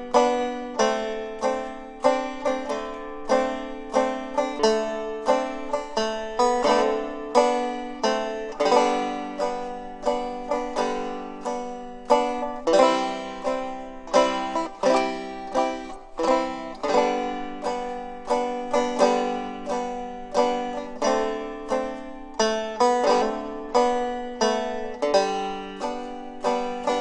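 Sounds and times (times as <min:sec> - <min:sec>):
plucked string instrument music: 0:00.0 - 0:27.0.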